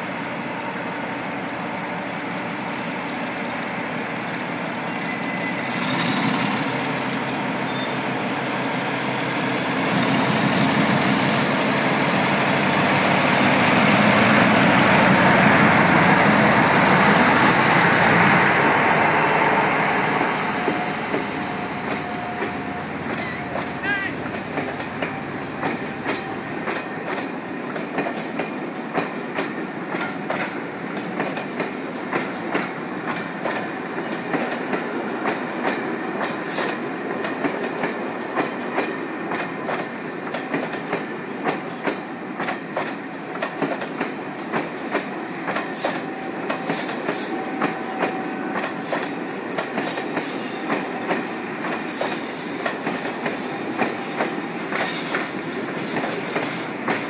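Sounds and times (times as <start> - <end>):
train wheels clicking over rail joints: 12.3 - 57.0.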